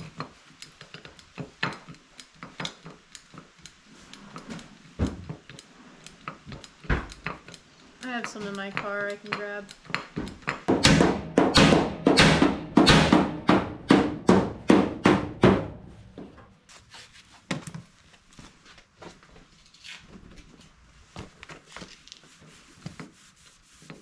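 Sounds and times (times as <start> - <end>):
hammer blows on sheet metal: 10.7 - 16.0.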